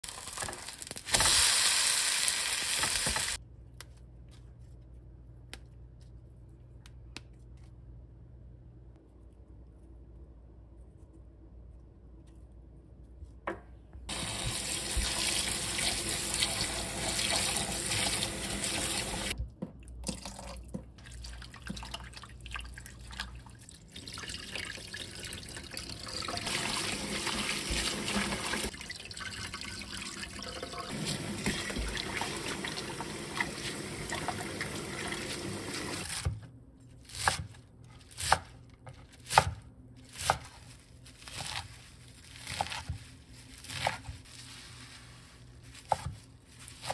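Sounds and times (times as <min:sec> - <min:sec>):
tap water running into metal bowl: 0:24.0 - 0:36.0
leaves swished in water: 0:40.5 - 0:46.9.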